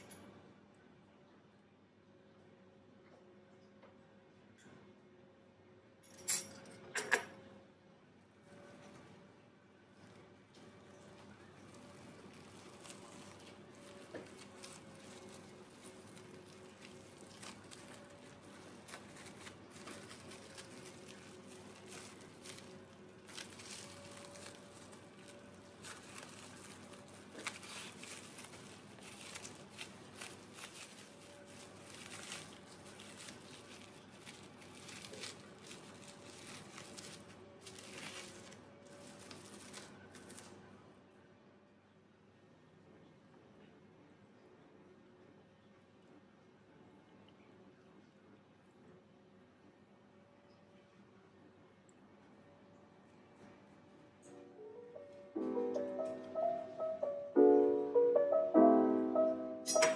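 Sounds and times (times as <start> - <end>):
cling film crinkling: 11.2 - 40.6.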